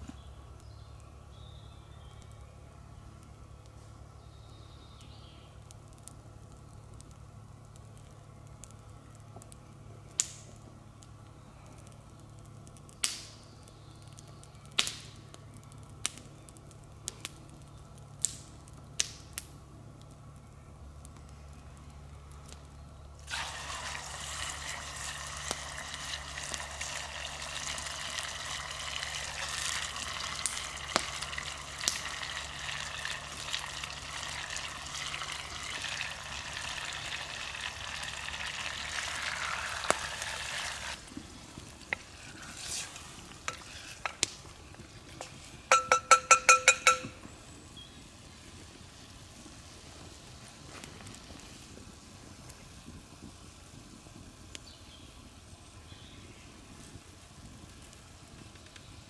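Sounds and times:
campfire crackling and popping: 0.0s - 59.0s
steady watery hiss: 23.2s - 47.0s.

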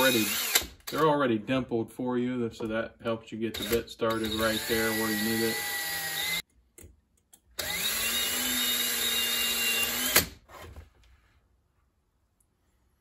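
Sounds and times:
cordless drill motor running: 0.0s - 1.0s, 3.6s - 6.4s, 7.6s - 10.4s.

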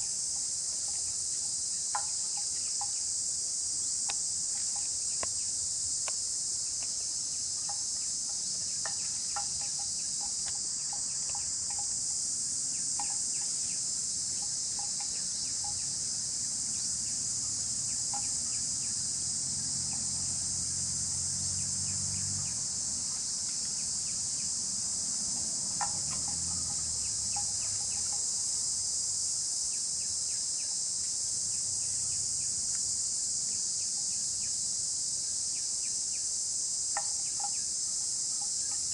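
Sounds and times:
faint ticks: 0.0s - 3.0s, 4.0s - 15.9s, 18.0s - 18.9s, 25.1s - 28.6s, 36.9s - 38.9s
insects chorus: 0.0s - 38.9s.

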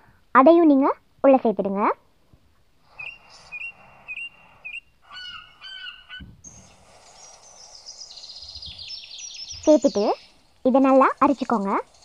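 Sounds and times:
bird chirps: 2.8s - 12.0s
complex bird calls: 2.8s - 12.0s.

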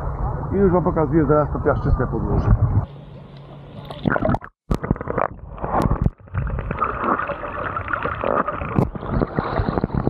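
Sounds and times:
sea water sloshing and gurgling: 3.6s - 10.0s.

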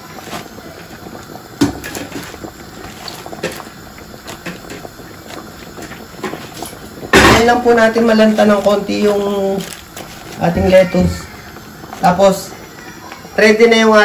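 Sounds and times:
soup simmering and bubbling: 0.0s - 14.0s.

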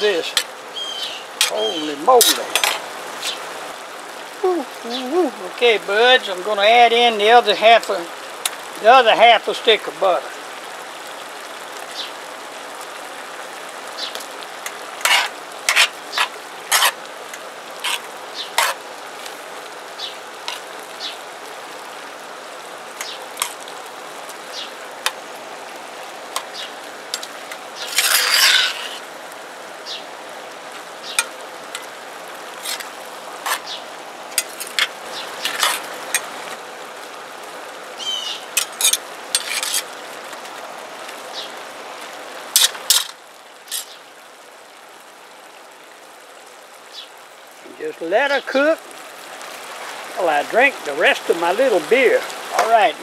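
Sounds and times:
pot sizzling: 0.0s - 44.6s, 46.6s - 53.0s
metal spoon scraping a pot: 15.0s - 17.0s, 17.8s - 18.8s, 27.2s - 29.0s, 38.6s - 39.9s.

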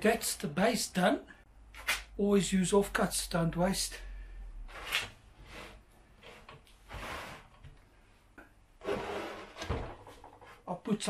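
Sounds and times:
wood scraping on workbench: 8.8s - 10.6s.

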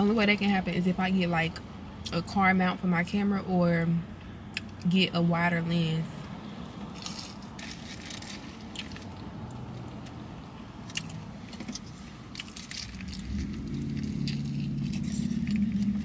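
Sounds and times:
low traffic rumble: 0.0s - 16.0s
chewing crispy food: 6.8s - 10.2s, 10.8s - 16.0s.

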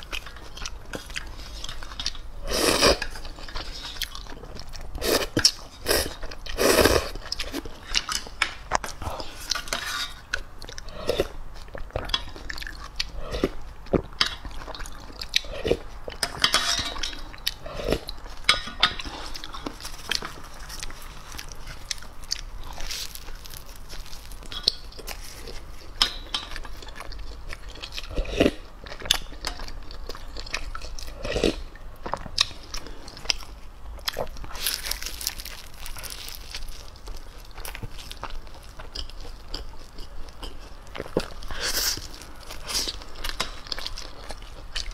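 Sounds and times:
metal spoon scraping metal pot: 9.6s - 10.2s, 16.3s - 17.2s.

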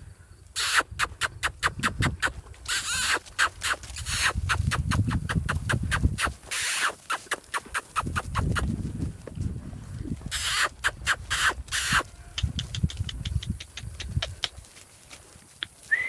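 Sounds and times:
tongue clicks and kissing sounds: 0.6s - 8.6s, 10.3s - 14.6s.

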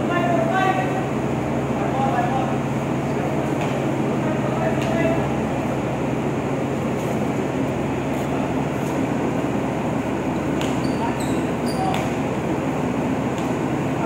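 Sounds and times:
ship machinery drone: 0.0s - 14.0s
sneakers squeaking: 10.6s - 12.2s.

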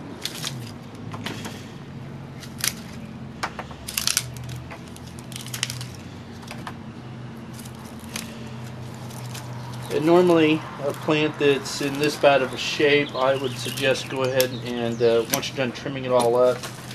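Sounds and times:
hand pruners snipping branches: 0.0s - 1.6s, 2.3s - 3.1s, 7.5s - 16.9s.

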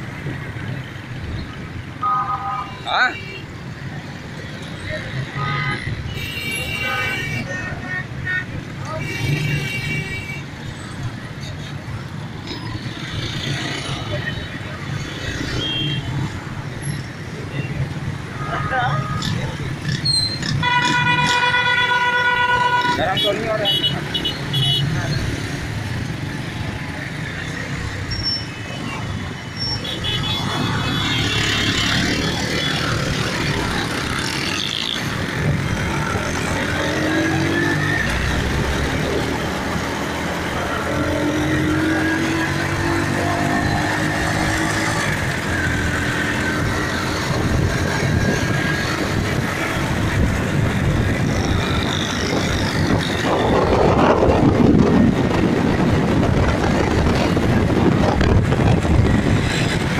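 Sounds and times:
passing traffic: 0.0s - 59.9s
road noise: 0.0s - 59.9s
wind rushing: 47.3s - 59.9s.

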